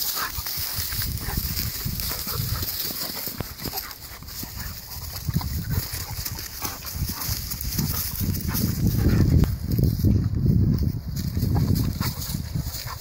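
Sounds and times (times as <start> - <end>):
dogs scuffling: 0.0 - 10.1.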